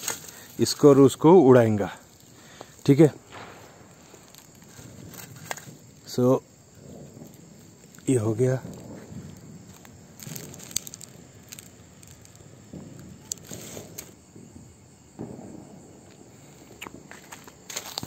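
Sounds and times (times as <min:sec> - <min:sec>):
light clicks and rustles: 0:07.8 - 0:14.2.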